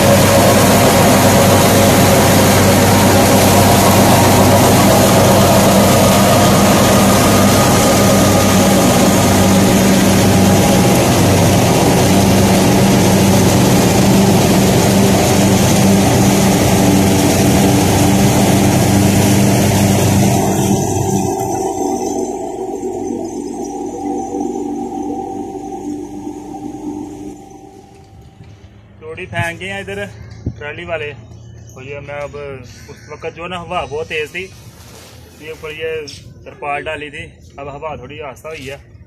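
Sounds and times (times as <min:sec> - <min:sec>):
straw blowing rush: 0:00.0 - 0:28.3
tractor and straw reaper drone: 0:00.0 - 0:32.5.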